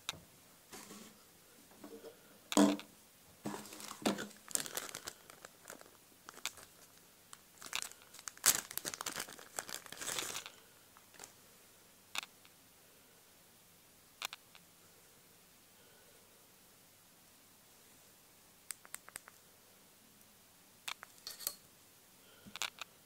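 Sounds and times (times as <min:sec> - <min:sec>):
plastic bag crinkling: 0:03.5 - 0:11.4.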